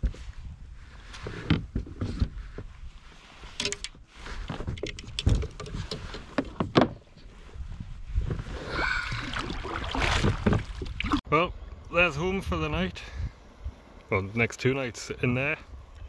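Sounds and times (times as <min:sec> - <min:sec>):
gear bumping against kayak hull: 0:10.0 - 0:11.2.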